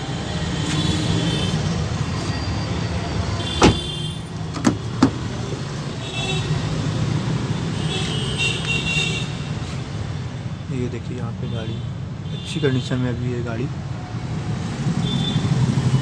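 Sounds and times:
car door shutting: 3.5 - 5.2.

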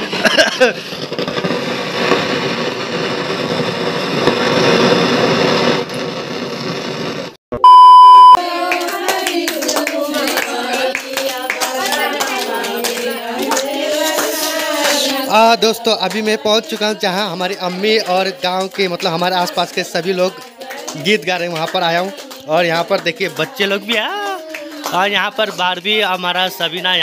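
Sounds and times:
loud steady beep: 7.5 - 8.4
women singing folk songs: 8.4 - 15.3, 19.4 - 21.2, 23.2 - 25.0.

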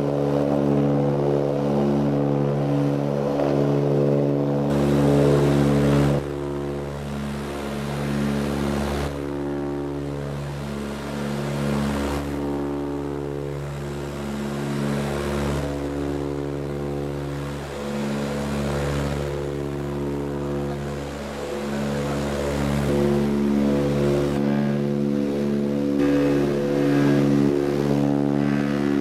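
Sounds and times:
turboprop engines droning: 0.0 - 29.0
rushing air noise: 25.9 - 29.0.

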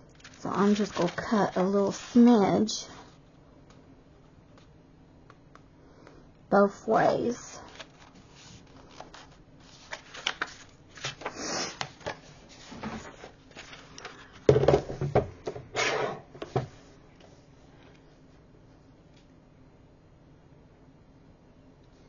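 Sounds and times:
paper rustling: 0.1 - 2.5, 7.6 - 14.4.

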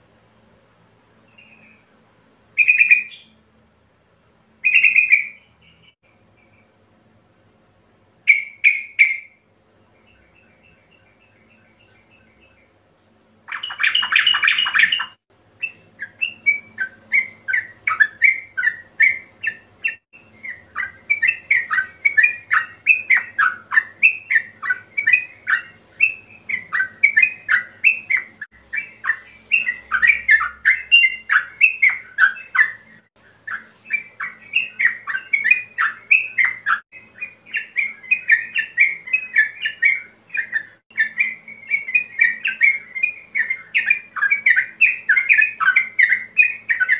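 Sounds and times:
bulbul singing: 1.2 - 2.0, 2.6 - 3.4, 4.6 - 6.8, 8.2 - 12.8, 13.4 - 46.9
loud harsh bird call: 2.6 - 3.4, 4.6 - 6.0, 13.5 - 46.9.

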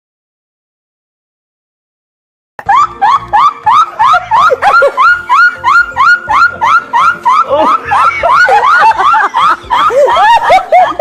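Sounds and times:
woman laughing in squeals: 2.6 - 11.0.

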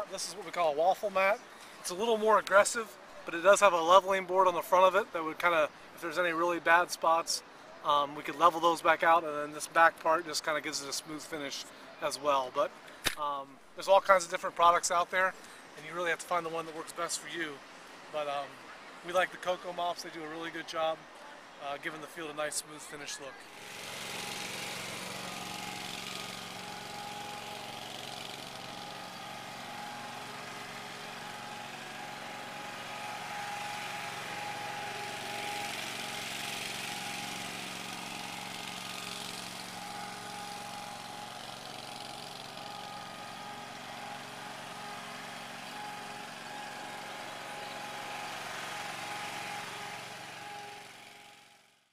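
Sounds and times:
small engine running: 23.4 - 51.9.

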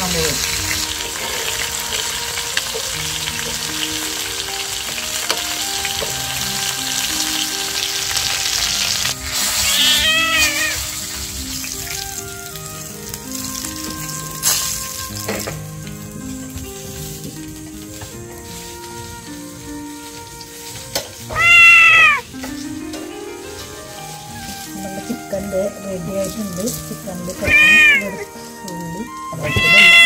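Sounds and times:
chicken frying in oil: 0.0 - 30.0
slow melodic background music: 0.0 - 30.0
high-pitched call: 9.6 - 10.8, 21.3 - 22.2.

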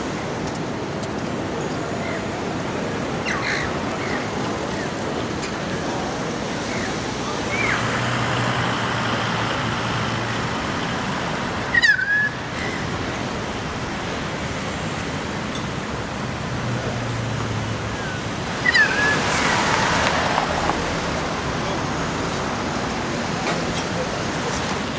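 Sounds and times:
bird call: 11.7 - 12.9, 18.0 - 19.8
outdoor rushing noise: 13.0 - 24.9.

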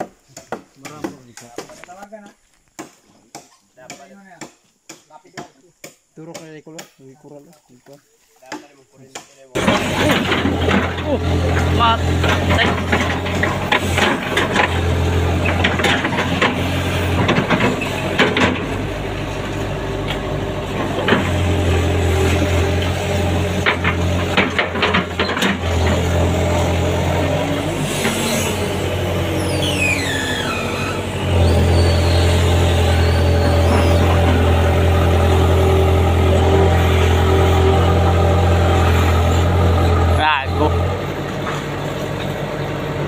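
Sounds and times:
metal knocks and clanks: 9.6 - 18.8, 23.5 - 26.1
diesel engine running: 9.6 - 43.0
falling squeal: 27.8 - 35.0.

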